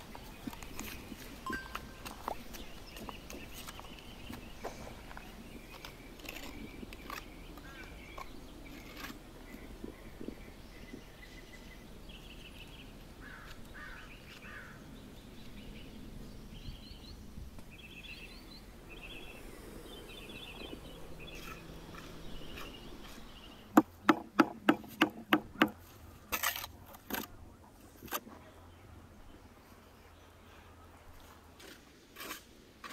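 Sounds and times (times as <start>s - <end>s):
birds chirping: 0.0s - 27.8s
bricks knocking: 23.7s - 25.8s.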